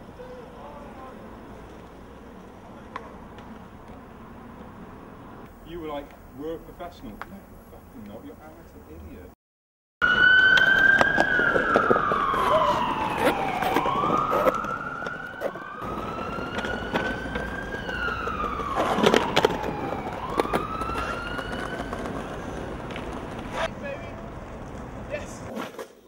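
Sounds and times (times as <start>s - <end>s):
emergency siren wailing: 10.0s - 23.7s.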